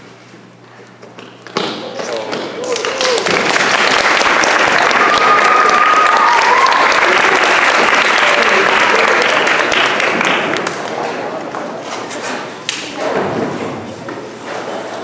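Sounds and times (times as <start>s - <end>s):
high cheer: 2.6s - 10.2s
audience applauding: 2.6s - 11.0s.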